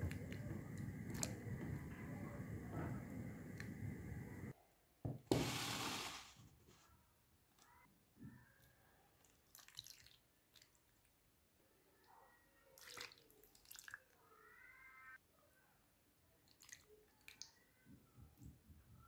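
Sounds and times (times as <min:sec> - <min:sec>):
liquid pouring and splashing: 0:00.1 - 0:01.8, 0:09.2 - 0:11.0.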